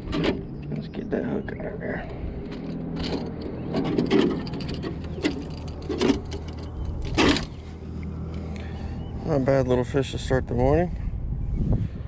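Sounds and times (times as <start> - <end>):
steady low hum: 0.0 - 12.0
knocks and rattles of handling fish: 2.4 - 7.6.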